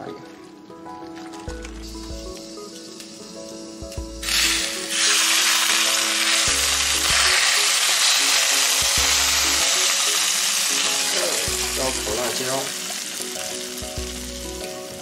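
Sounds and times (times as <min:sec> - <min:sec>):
soft background music: 0:00.0 - 0:15.0
hot oil sizzling: 0:01.6 - 0:15.0.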